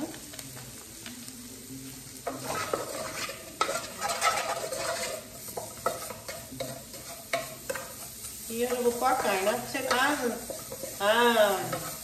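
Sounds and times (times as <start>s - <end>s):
food sizzling in oil: 0.0s - 12.0s
spoon knocking and scraping pot: 2.3s - 8.2s, 9.1s - 11.1s.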